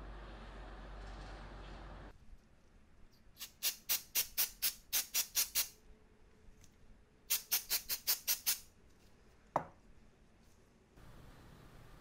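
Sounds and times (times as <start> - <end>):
aerosol spray can hissing: 3.4 - 5.8, 7.3 - 8.7.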